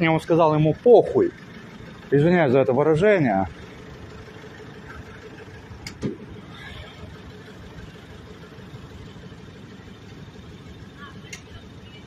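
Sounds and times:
vehicle engine hum: 0.0 - 12.0.

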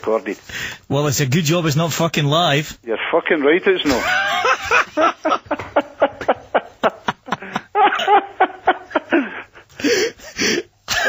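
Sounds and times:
men laughing over a telephone: 3.8 - 11.0.

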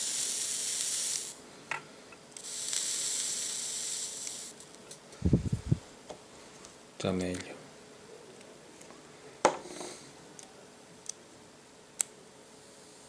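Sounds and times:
atomizer coil hissing and sizzling: 0.0 - 7.7.

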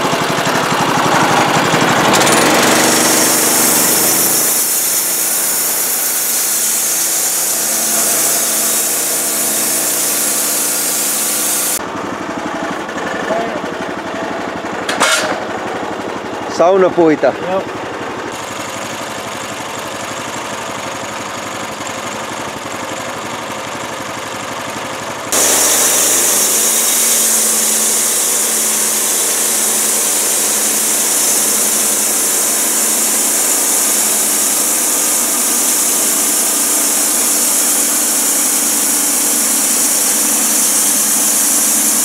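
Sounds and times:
engine running and revving: 0.0 - 11.8, 25.3 - 42.0
saw blade cutting log: 0.0 - 11.8, 25.3 - 42.0.

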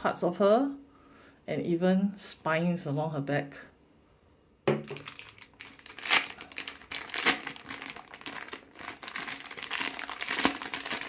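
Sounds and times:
plastic bag crinkling: 4.8 - 11.0.

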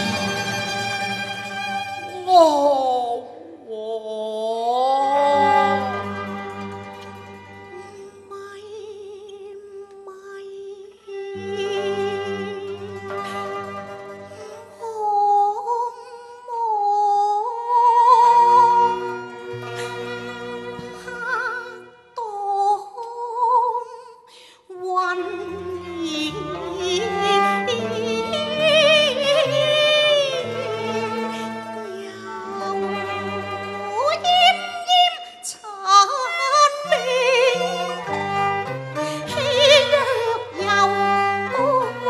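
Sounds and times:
traditional instrumental accompaniment: 0.0 - 3.2, 5.2 - 8.3, 11.3 - 14.8, 18.2 - 22.1, 25.2 - 35.4, 36.7 - 42.0
woman singing with vibrato: 2.0 - 6.1, 8.0 - 13.7, 14.6 - 19.1, 21.0 - 31.2, 31.8 - 38.4, 39.0 - 42.0.

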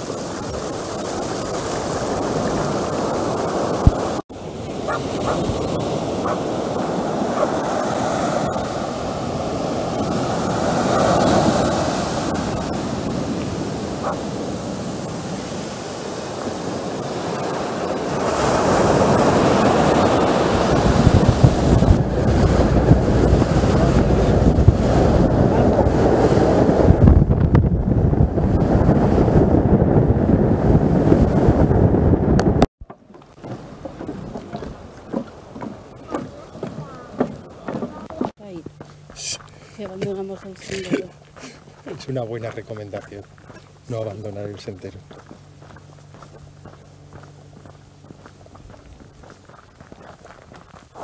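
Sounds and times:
waves surging up a beach: 0.0 - 27.2, 33.5 - 38.4
wind gusting on microphone: 0.0 - 32.7.

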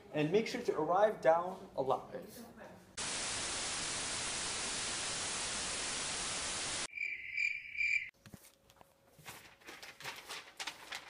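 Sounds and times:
tv static hiss: 3.0 - 6.9.

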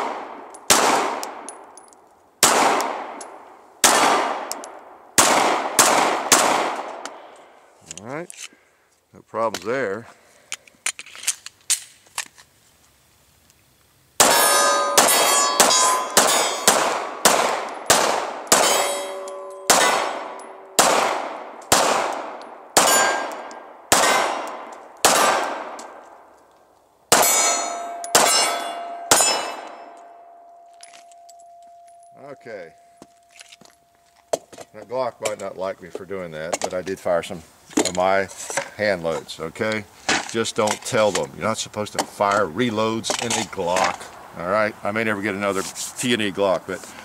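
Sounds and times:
pistol shots: 0.0 - 1.6, 2.4 - 7.2, 14.2 - 26.0, 27.1 - 30.0
pistol handling clicks: 4.4 - 4.8
steel targets clanging: 14.2 - 16.8, 17.7 - 20.8, 22.8 - 24.2, 27.1 - 33.8.

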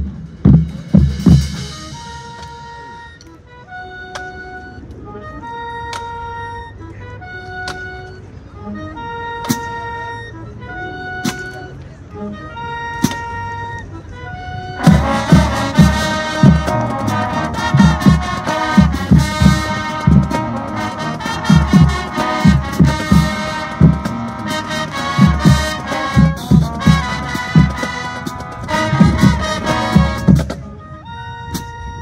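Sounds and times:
heavy drum hits: 0.0 - 1.6
marching band brass: 0.0 - 32.0.

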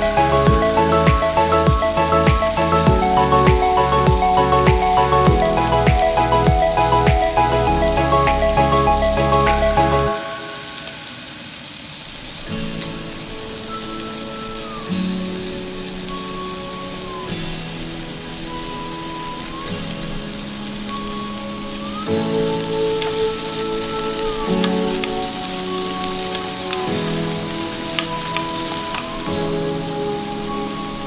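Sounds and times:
background music: 0.0 - 11.5, 12.5 - 31.0
vegetables sizzling in hot oil: 10.2 - 31.0.

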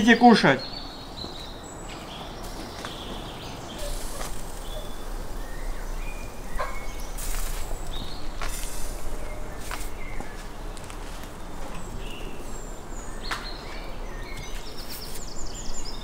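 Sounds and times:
bird chirps: 0.0 - 16.0
metal skewers clicking on grill: 3.8 - 9.1.

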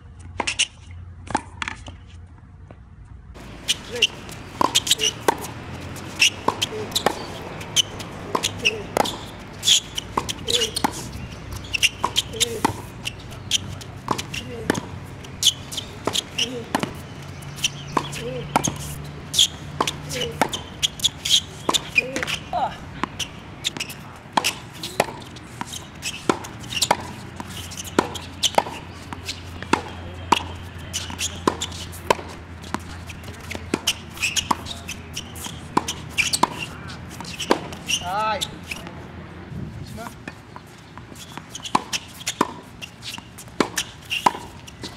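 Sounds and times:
balls bouncing on court: 3.4 - 38.9
rackets hitting tennis balls: 3.4 - 39.1, 39.9 - 44.9.

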